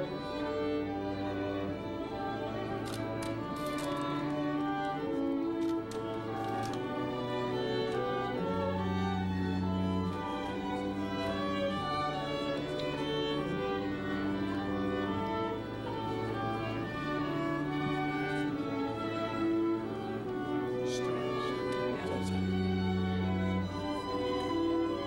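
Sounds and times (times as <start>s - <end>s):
violin sustained notes: 0.0s - 25.0s.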